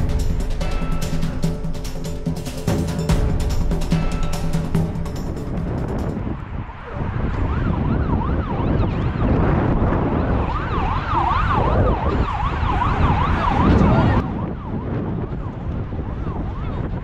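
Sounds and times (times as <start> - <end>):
wind rumble on microphone: 2.7 - 17.0
siren yelping: 6.9 - 14.8.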